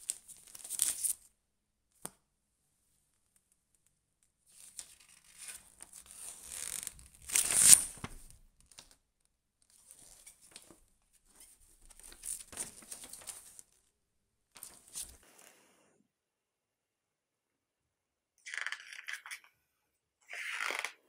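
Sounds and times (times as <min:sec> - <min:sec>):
paper rustling: 0:00.0 - 0:01.2, 0:04.5 - 0:08.9, 0:09.7 - 0:13.8, 0:14.6 - 0:15.2
pages riffling: 0:00.1 - 0:01.2, 0:04.6 - 0:08.4, 0:11.9 - 0:13.7.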